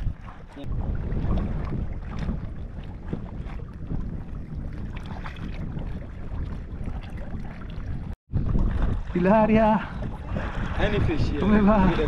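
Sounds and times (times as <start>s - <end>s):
water lapping against hull: 0.0s - 12.0s
wind rumbling on microphone: 0.0s - 12.0s.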